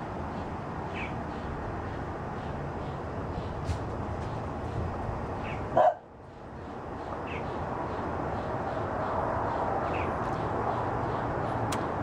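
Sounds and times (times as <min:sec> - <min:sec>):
bark-like animal call: 0:05.8 - 0:06.0.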